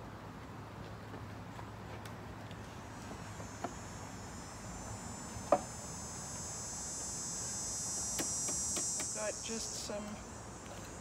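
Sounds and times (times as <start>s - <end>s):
insects droning: 2.2s - 11.0s.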